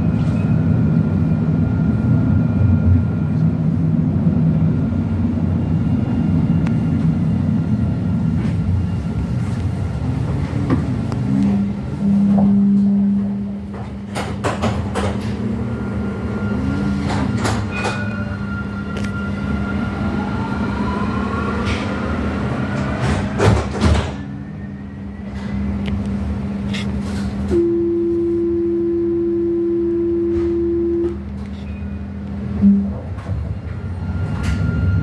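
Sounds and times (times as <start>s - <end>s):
tram electrical hum: 0.0s - 35.0s
door warning tone: 11.3s - 13.6s, 27.5s - 33.2s
knocks and clatter: 13.7s - 15.4s, 23.0s - 24.2s.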